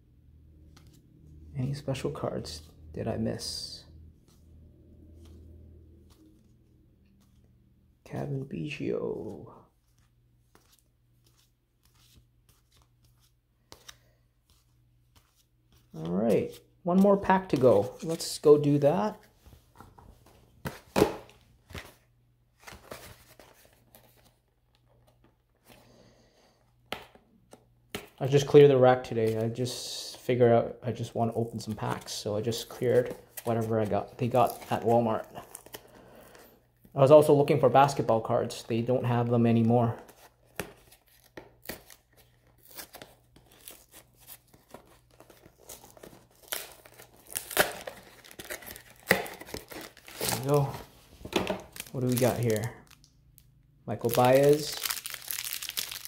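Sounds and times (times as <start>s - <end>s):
rustling of cards and cardboard: 8.6s - 25.8s, 31.0s - 36.6s, 37.9s - 56.0s.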